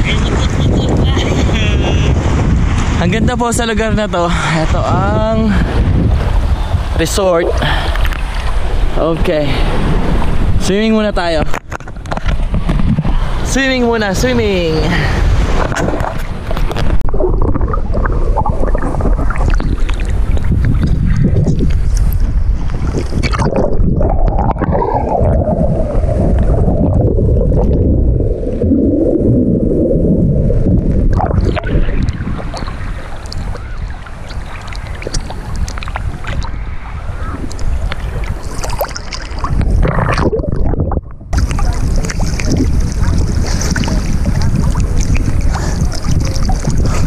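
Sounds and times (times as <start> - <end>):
low rumble of wind and water: 0.0 - 47.0
sea water sloshing and splashing: 7.6 - 10.6, 14.9 - 47.0.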